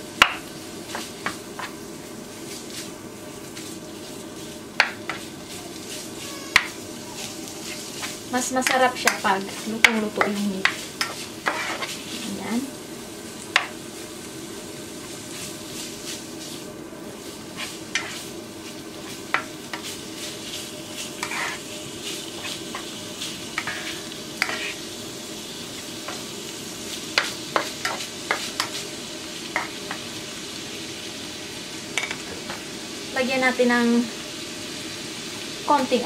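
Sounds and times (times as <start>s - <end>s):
meat sizzling in frying pan: 0.0s - 36.0s
spatula scraping pan: 3.5s - 12.3s, 17.5s - 24.9s, 26.9s - 28.9s.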